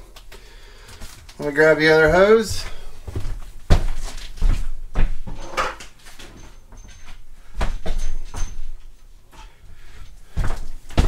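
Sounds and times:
objects knocking and clunking: 3.7s - 9.6s.

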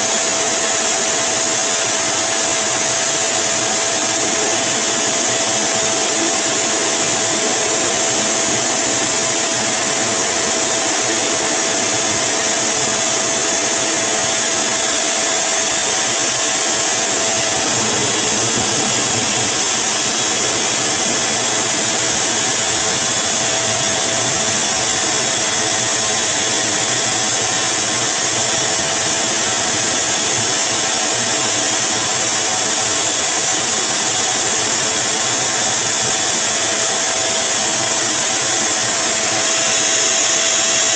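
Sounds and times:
pet dryer blowing air: 0.0s - 40.9s.

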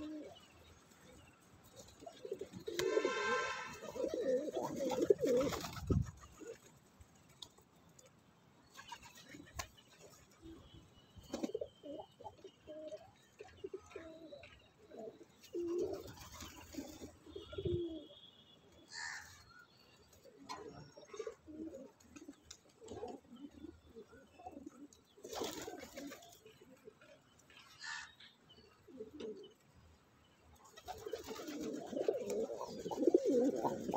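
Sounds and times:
pigeons cooing: 0.0s - 0.5s, 2.0s - 6.6s, 11.4s - 18.2s, 20.5s - 26.4s, 28.9s - 29.5s, 30.8s - 33.9s
wings flapping: 2.7s - 6.7s, 30.8s - 32.5s.

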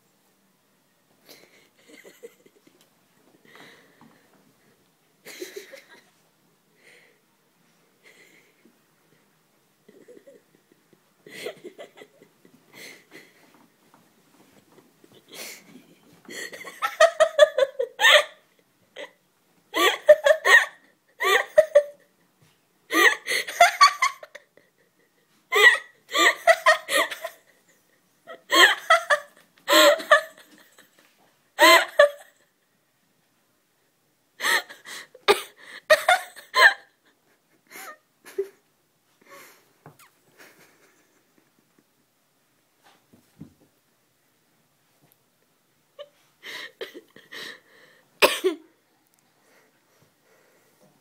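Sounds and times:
person giggling: 1.2s - 2.9s, 5.2s - 6.2s, 9.8s - 13.6s, 14.5s - 22.1s, 22.9s - 32.5s, 34.4s - 41.9s, 46.0s - 47.6s.

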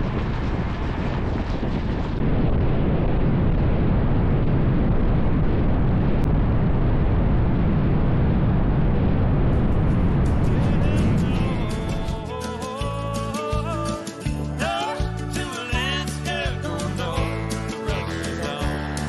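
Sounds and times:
wind rush on microphone: 0.0s - 12.9s.

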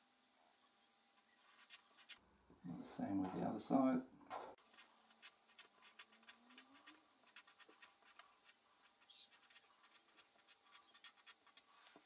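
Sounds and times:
pen scratching on paper: 1.4s - 2.2s, 4.6s - 12.0s.

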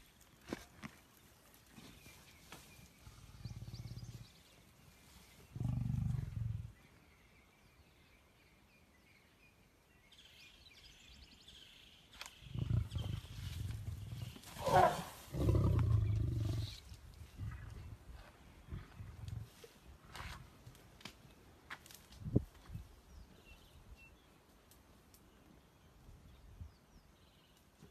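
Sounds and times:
lions growling: 3.0s - 4.5s, 5.4s - 6.8s, 12.5s - 18.0s.

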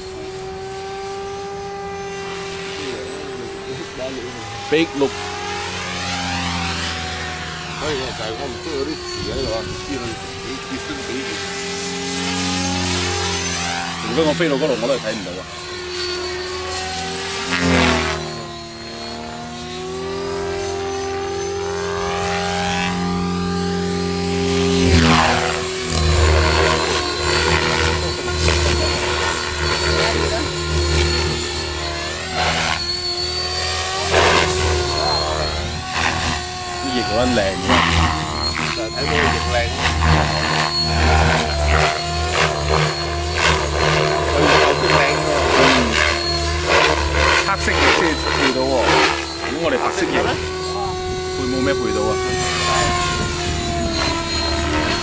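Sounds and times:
rc helicopter motor and rotor whine: 0.0s - 55.0s.

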